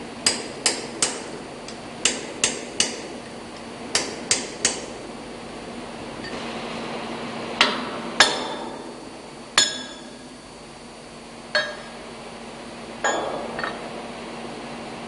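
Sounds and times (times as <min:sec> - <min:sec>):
hammer clinking on metal: 0:11.6 - 0:12.0, 0:13.0 - 0:13.8.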